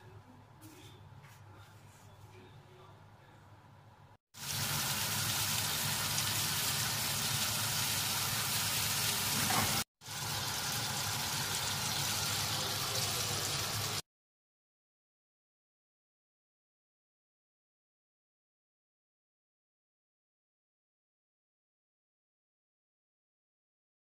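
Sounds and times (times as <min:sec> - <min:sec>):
meat sizzling on griddle: 0:04.4 - 0:14.0.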